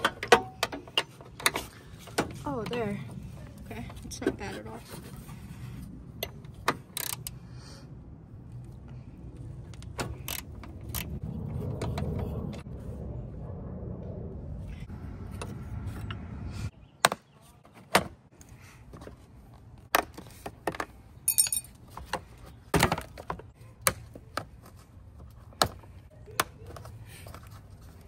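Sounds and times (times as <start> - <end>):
hand tools clicking and knocking: 0.0 - 2.8
steady low rumble: 1.8 - 16.8
metallic jingle: 21.3 - 21.7.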